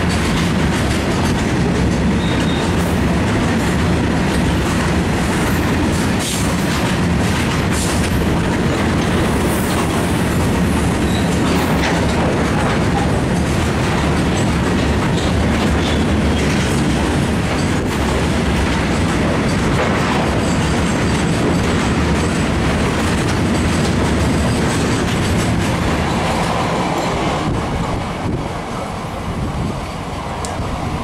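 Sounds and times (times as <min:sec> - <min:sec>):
train wheels on rails: 0:00.0 - 0:31.0.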